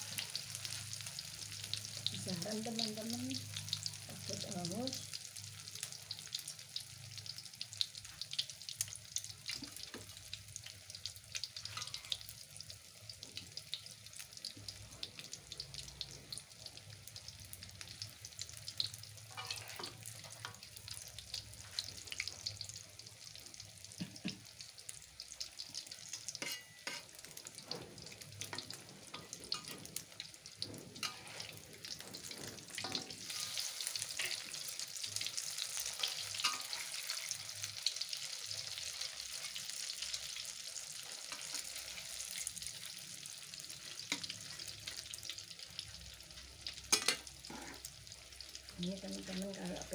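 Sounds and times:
fritters sizzling in hot oil: 0.0 - 49.9
metal spatula knocking wok: 26.4 - 27.1.

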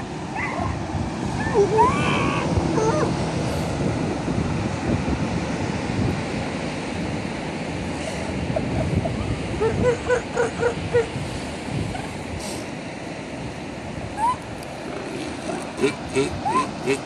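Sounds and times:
wind: 0.0 - 17.0
animal barking calls: 14.2 - 17.0.

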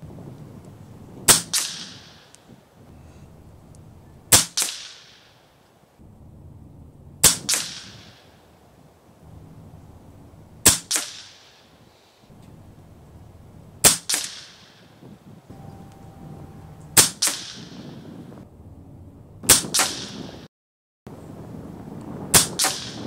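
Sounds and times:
air rifle shots: 1.3 - 2.4, 4.3 - 5.4, 7.2 - 8.4, 10.6 - 11.8, 13.8 - 15.0, 17.0 - 18.0, 19.5 - 20.4, 22.3 - 23.0
second sharp crack: 10.6 - 11.6, 16.8 - 17.9, 19.5 - 20.3.

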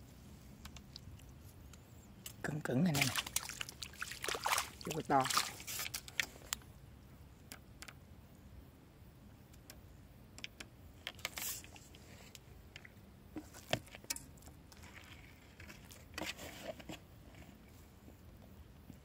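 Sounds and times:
crinkly rustles: 2.9 - 6.6, 13.4 - 17.9.

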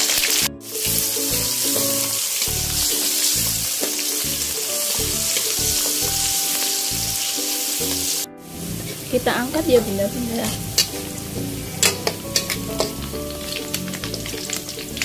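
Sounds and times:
aromatics sizzling in hot oil: 0.0 - 15.0
background music with steady beat: 0.0 - 15.0
metal spatula stirring in wok: 10.4 - 15.0.

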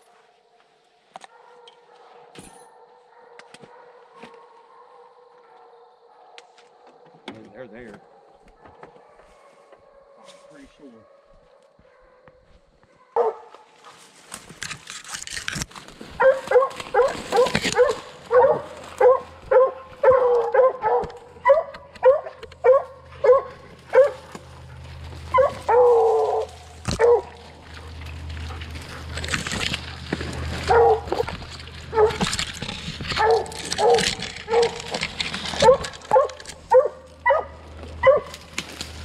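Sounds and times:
dogs barking: 1.2 - 13.8, 16.1 - 39.0
branches crackling: 13.8 - 39.0.

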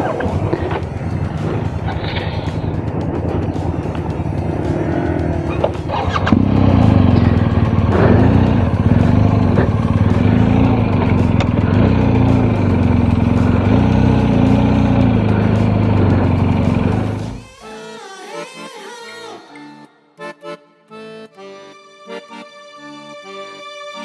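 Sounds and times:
motorcycle engine revving: 0.0 - 17.4.

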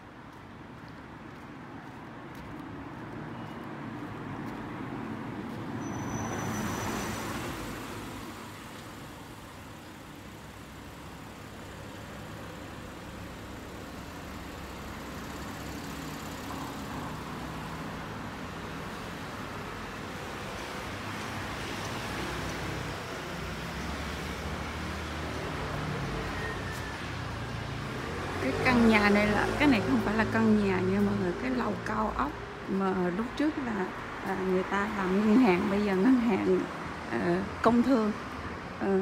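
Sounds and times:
street traffic hum: 0.0 - 39.0
vehicle passing: 21.2 - 39.0.

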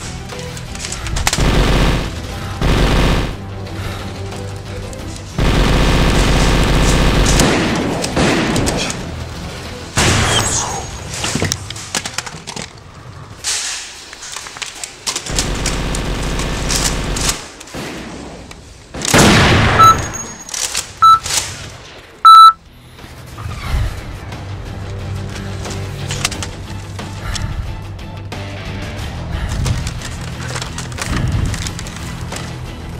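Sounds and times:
heavy shots and booms: 1.4 - 3.4
rapid automatic gunfire effects: 1.4 - 3.4, 5.4 - 7.8
short electronic beeps: 19.8 - 20.4, 22.2 - 22.6.

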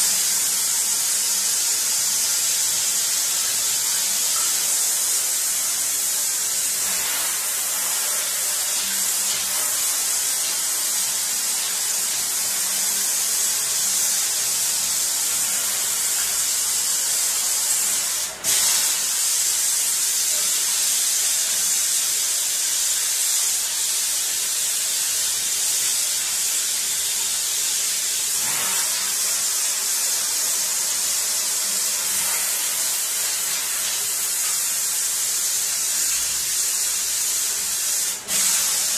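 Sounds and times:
water spraying into a metal sink: 0.0 - 38.9.

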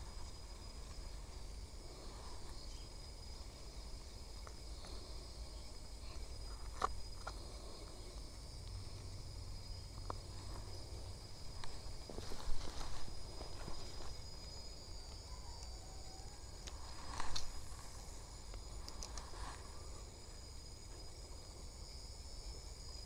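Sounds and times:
insects chirring: 0.0 - 23.0.

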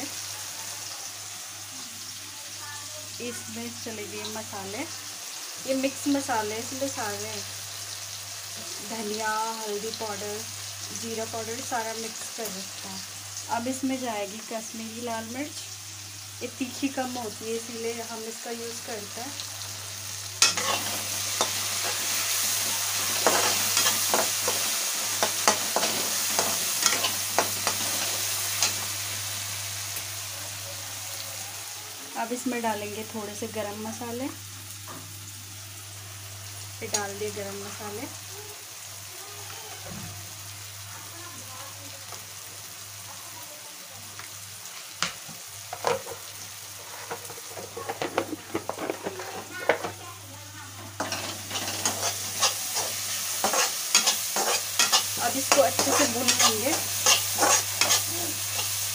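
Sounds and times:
masala sizzling in a pan: 0.0 - 58.9
metal spatula scraping a pan: 20.4 - 22.2, 23.0 - 28.8, 46.8 - 50.0, 51.0 - 58.8.

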